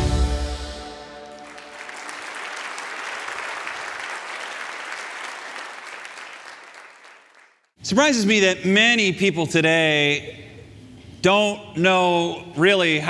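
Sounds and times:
guitar and orchestra chord: 0.0 - 1.7
audience applauding: 1.0 - 7.7.

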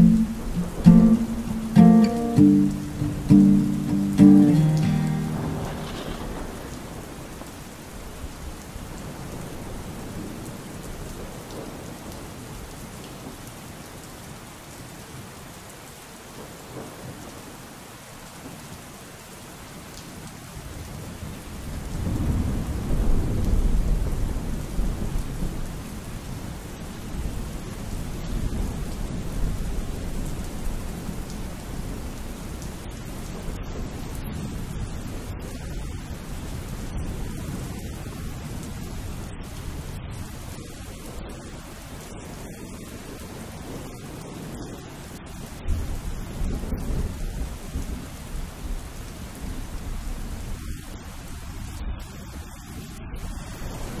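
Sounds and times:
thunder rumbling: 0.0 - 8.2
steady rain: 0.0 - 54.0.

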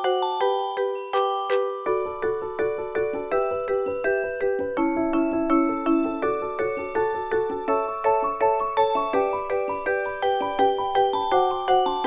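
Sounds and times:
cheerful mallet percussion melody: 0.0 - 12.0.

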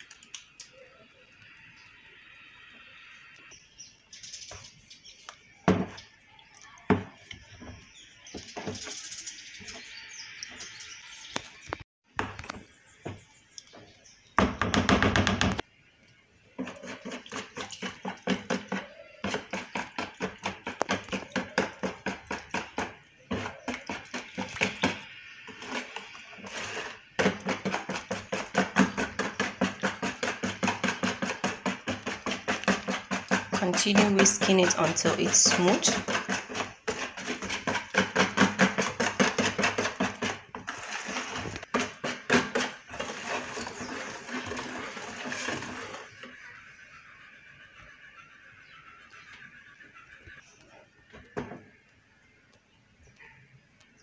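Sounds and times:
whisk beating batter in a bowl: 16.6 - 46.3
spoon scraping a bowl: 16.6 - 46.5.

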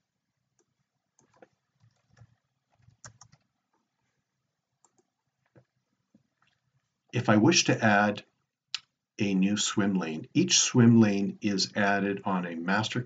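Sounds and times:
computer keyboard keystrokes: 0.6 - 3.5.

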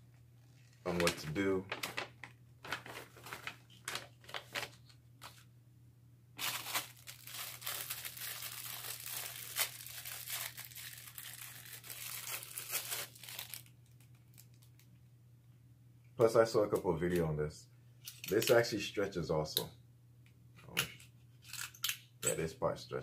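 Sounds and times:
plastic packaging crinkling: 0.5 - 5.4, 6.4 - 15.0.

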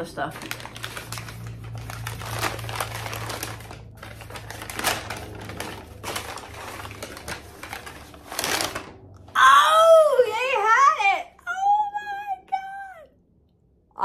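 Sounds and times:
paper bag crinkling and rustling: 0.0 - 9.2.

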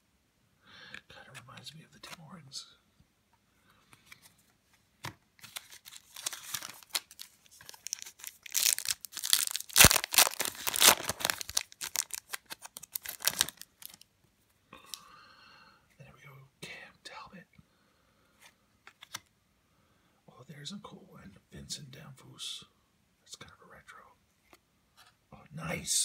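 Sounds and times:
foil wrapper tearing and crinkling: 5.4 - 14.0.

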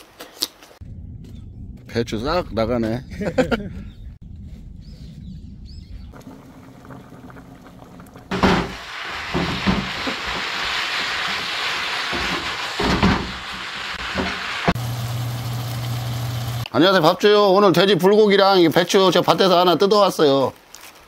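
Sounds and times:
wooden spatula knocking and scraping: 8.3 - 10.5, 12.1 - 13.4
meat sizzling in pan: 8.3 - 16.6.

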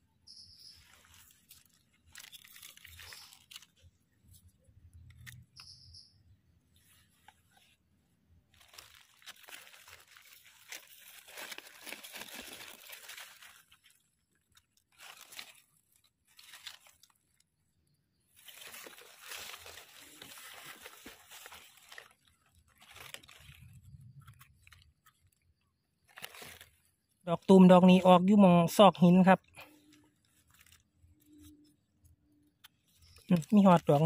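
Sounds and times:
dry leaves crackling: 0.6 - 3.9, 8.5 - 17.5, 18.3 - 25.4, 26.0 - 28.0, 29.1 - 31.5, 32.9 - 34.0.

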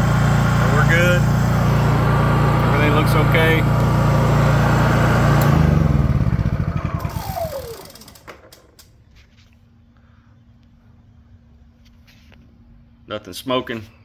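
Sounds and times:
generator engine running: 0.0 - 8.9.

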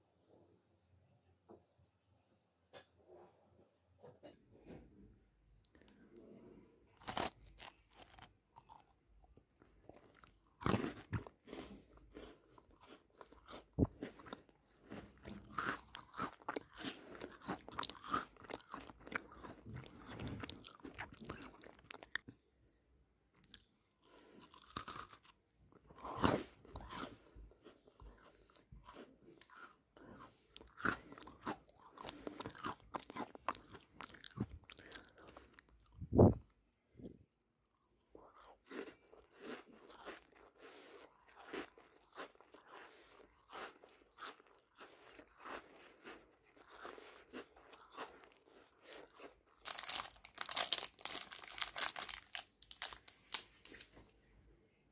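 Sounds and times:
crunchy chewing: 6.9 - 9.0, 9.6 - 22.4, 23.4 - 36.5, 37.6 - 54.0
crisp cookie bites: 6.9 - 22.4, 37.6 - 54.1.

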